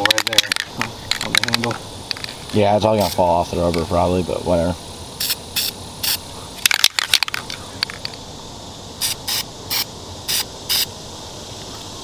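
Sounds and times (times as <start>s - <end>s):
spray can hissing bursts: 3.0s - 3.4s, 5.2s - 6.2s, 9.0s - 10.9s.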